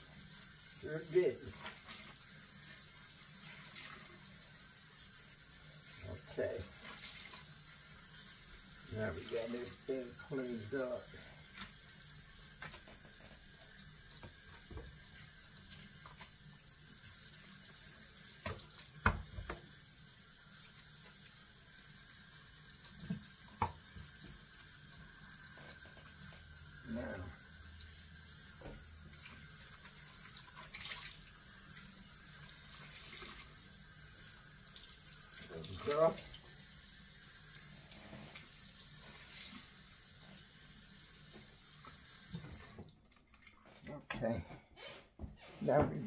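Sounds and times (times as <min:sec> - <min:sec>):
tap running into sink: 0:18.3 - 0:19.8, 0:22.9 - 0:24.4.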